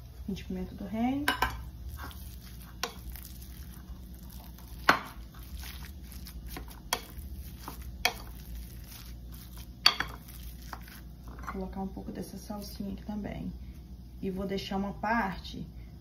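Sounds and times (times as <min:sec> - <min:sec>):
spatula tapping glass bowl: 0:01.2 - 0:01.6, 0:06.5 - 0:09.1, 0:09.8 - 0:11.0
meat squishing: 0:01.6 - 0:11.4.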